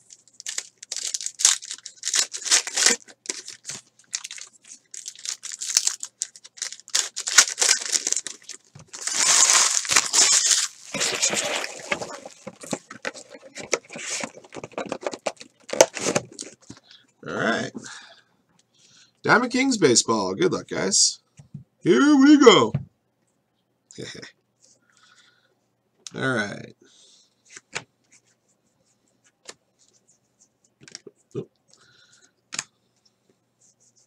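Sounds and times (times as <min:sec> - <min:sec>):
card pack wrappers tearing: 0:00.0 - 0:14.5.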